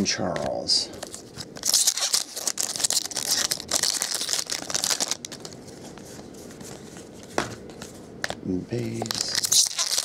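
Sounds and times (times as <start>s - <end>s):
foil wrapper crinkling: 1.0s - 6.0s, 8.9s - 10.0s
foil wrapper tearing: 1.1s - 5.6s, 9.0s - 10.0s.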